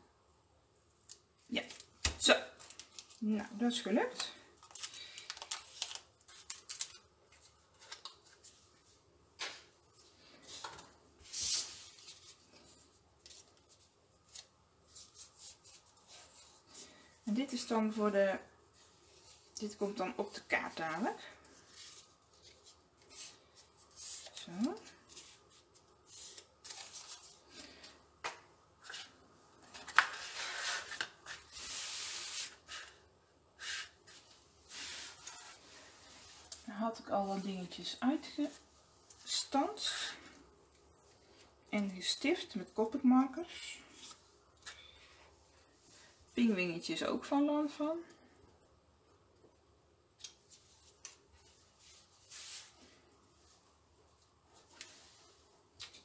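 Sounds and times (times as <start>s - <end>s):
paper rustling: 4.6s - 17.0s, 21.4s - 27.9s
paper rustling and rubbing: 21.4s - 27.6s, 28.8s - 33.0s
brushing or scraping on paper: 30.0s - 33.0s, 33.6s - 36.6s, 51.4s - 53.0s.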